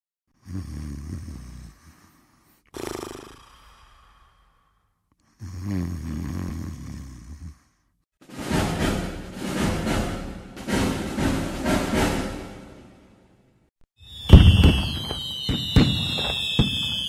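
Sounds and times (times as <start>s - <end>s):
low pulsing snores: 0.3s - 8.0s
breath out: 1.7s - 5.8s
music: 8.2s - 13.6s.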